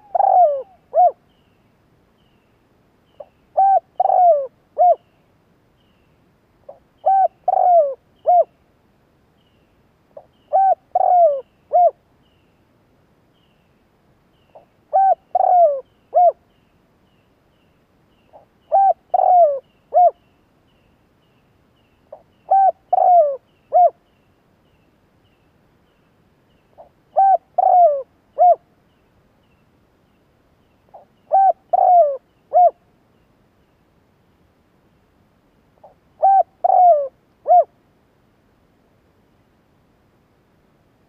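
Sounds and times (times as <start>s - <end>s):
dove cooing: 0.0s - 1.2s, 3.2s - 5.1s, 6.7s - 8.5s, 10.2s - 12.0s, 14.6s - 16.4s, 18.3s - 20.2s, 22.1s - 24.0s, 26.8s - 28.6s, 30.9s - 32.8s, 35.8s - 37.7s.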